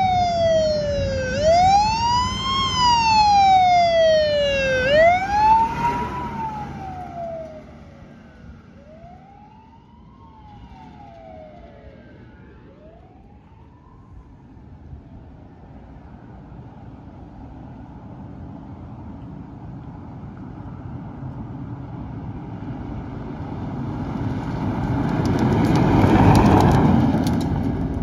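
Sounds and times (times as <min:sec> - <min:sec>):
wailing siren: 0:00.0 - 0:15.3
vehicle engine rumble: 0:00.0 - 0:28.0.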